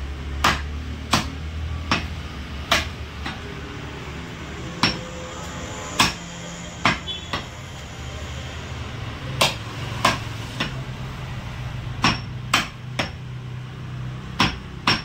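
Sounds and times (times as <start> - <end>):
cleaver chopping on wooden block: 0.4 - 3.4, 9.4 - 10.8, 12.0 - 13.2, 14.4 - 15.0.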